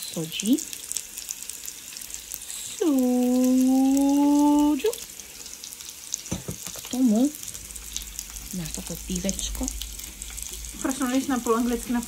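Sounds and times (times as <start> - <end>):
knock: 6.3 - 6.6.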